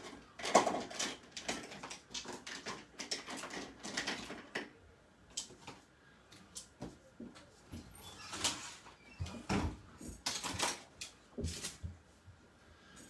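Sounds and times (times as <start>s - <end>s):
pens clicking and clattering: 0.0s - 5.8s.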